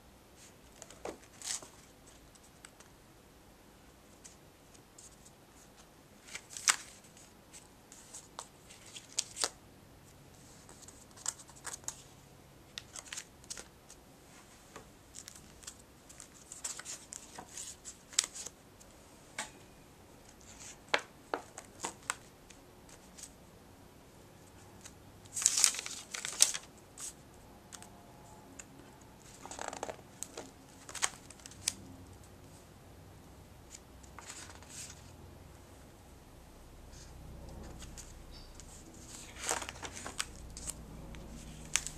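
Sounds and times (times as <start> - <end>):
pages turning rustle: 0.4 - 2.9, 4.2 - 9.6, 10.4 - 12.1, 12.8 - 14.0, 15.1 - 18.5, 20.3 - 23.4, 24.8 - 27.9, 29.2 - 31.9, 33.7 - 35.1, 37.6 - 41.9
paper taps and crinkles: 20.4 - 23.3.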